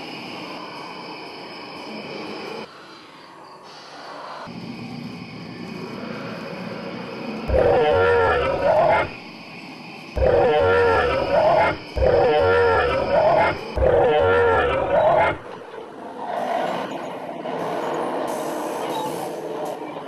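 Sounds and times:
dinosaur roars: 7.5 - 9.2, 10.2 - 15.6.

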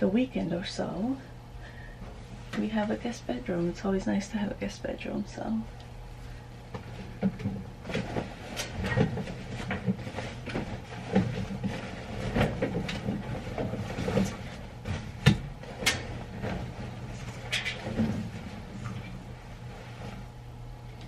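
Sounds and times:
household items clattering: 7.2 - 19.0.

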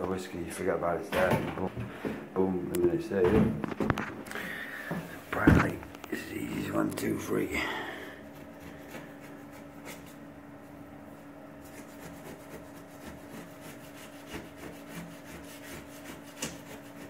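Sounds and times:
razor blade scraping tiles: 11.7 - 17.0.

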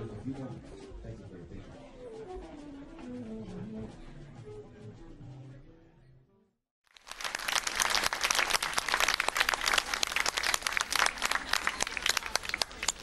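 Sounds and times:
audience applauding: 6.9 - 13.0.

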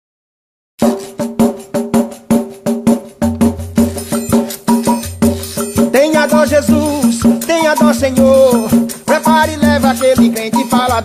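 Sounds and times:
upbeat song instrumental: 0.8 - 11.0.

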